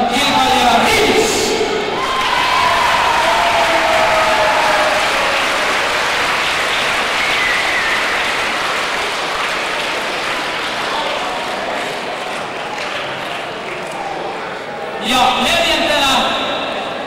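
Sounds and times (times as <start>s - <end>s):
audience applauding: 2.0s - 14.6s.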